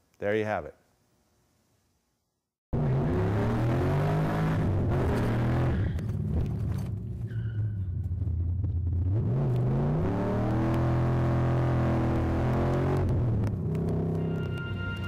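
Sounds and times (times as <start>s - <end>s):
car engine accelerating: 2.8s - 14.6s.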